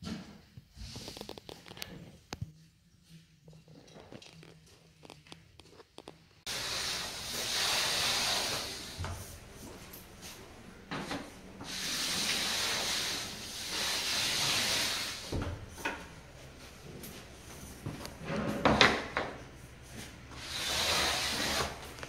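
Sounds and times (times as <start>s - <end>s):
applicator scraping drywall corner: 6.5s - 9.0s, 11.6s - 15.3s, 20.4s - 21.9s.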